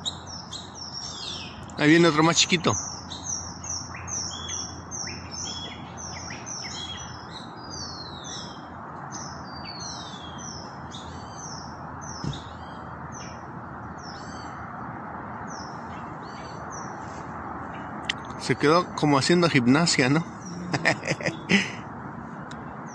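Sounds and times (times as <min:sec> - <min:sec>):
chorus of high bird chirps: 0:00.0 - 0:22.9
steady background noise: 0:00.0 - 0:22.9
dull thump: 0:12.2 - 0:12.5.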